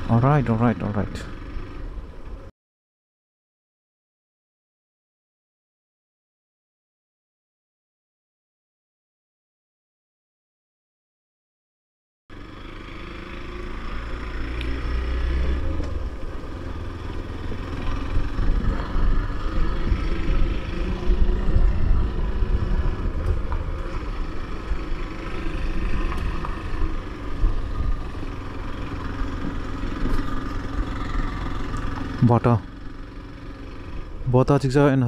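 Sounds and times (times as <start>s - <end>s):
motorcycle engine running: 0.0s - 2.5s, 12.3s - 35.0s.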